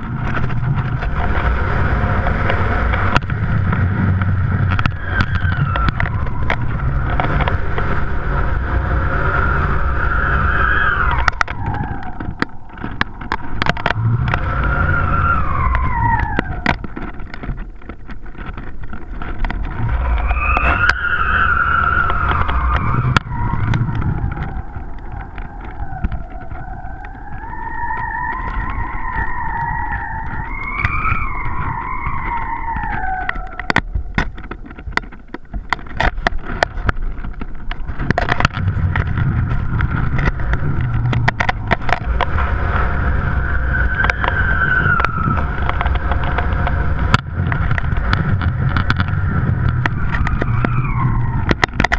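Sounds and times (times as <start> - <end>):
wind rumbling on microphone: 0.0 - 51.9
whistling tone: 20.0 - 33.7, 43.0 - 45.9.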